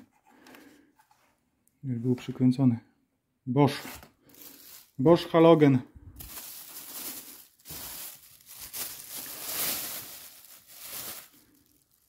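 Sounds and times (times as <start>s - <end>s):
plastic bags crinkling: 4.2s - 5.2s, 6.1s - 12.0s.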